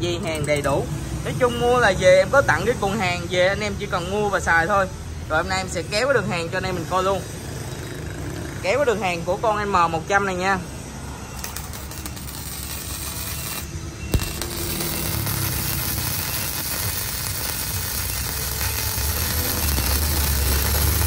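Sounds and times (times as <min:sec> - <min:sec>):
welding arc crackling: 0:11.3 - 0:21.0.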